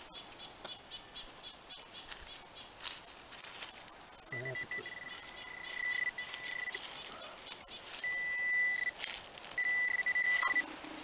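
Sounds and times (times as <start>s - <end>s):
scraping of soil and leaves: 1.7s - 11.0s
metal detector high tone: 4.3s - 6.9s, 7.9s - 9.0s, 9.6s - 10.7s.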